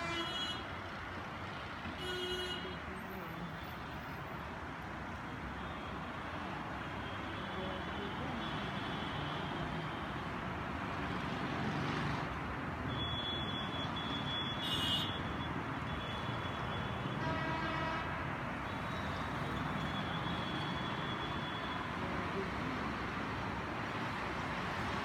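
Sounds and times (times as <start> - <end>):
vehicle horns: 0.0 - 0.7, 13.0 - 15.3, 16.0 - 21.7
dense traffic hum: 0.0 - 25.0.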